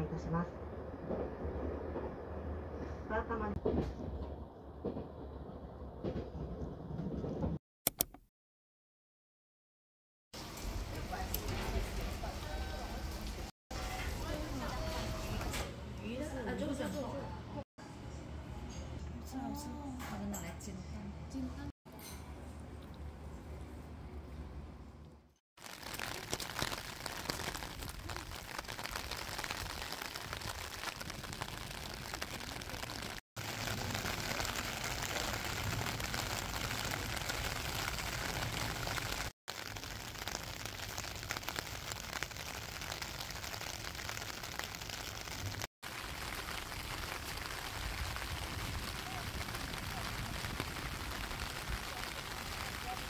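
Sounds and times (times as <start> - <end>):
steady rain: 10.4 - 15.2, 25.6 - 53.0
rain on plastic umbrella: 10.4 - 15.6, 25.6 - 53.0.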